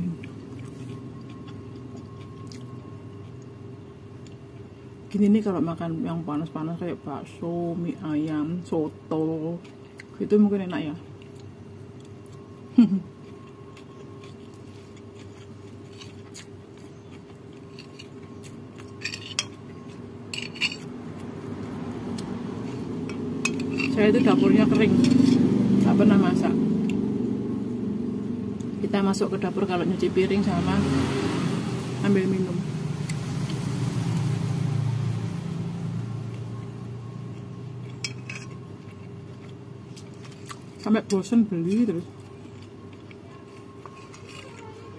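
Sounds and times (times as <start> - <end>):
low background hum: 0.0 - 44.9
metal spoon scraping ceramic plate: 19.0 - 19.6, 20.3 - 20.9, 23.1 - 24.4, 25.0 - 25.4, 38.0 - 38.6
vehicle engine running: 20.0 - 40.0.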